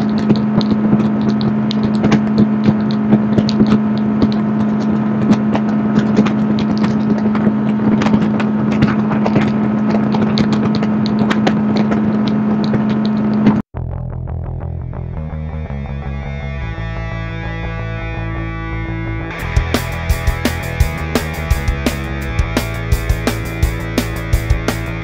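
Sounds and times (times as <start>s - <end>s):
outboard motor running: 0.0s - 13.6s, 19.3s - 25.0s
sharp ticks and knocks: 0.0s - 13.6s, 19.3s - 25.0s.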